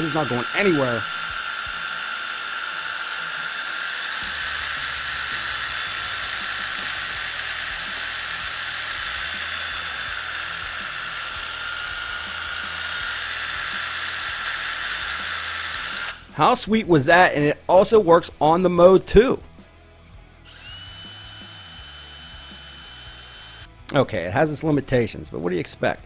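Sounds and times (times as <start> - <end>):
impact driver motor whine: 0.0 - 16.4, 20.5 - 23.7.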